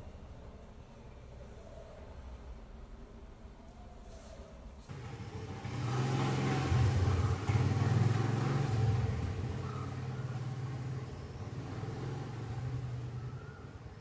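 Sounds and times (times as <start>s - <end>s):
vehicle engine hum: 4.9s - 14.0s.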